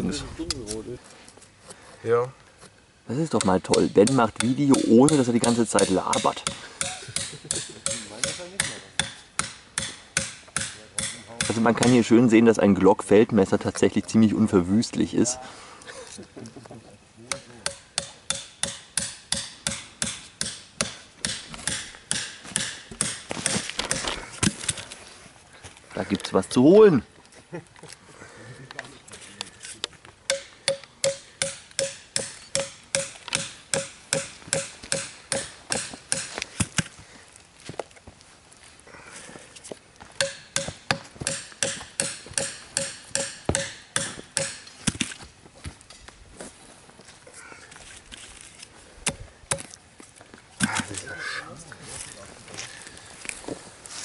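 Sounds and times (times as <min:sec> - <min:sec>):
knife striking wood: 0:03.4 - 0:12.0, 0:30.3 - 0:36.8, 0:40.2 - 0:45.1, 0:49.1 - 0:49.8.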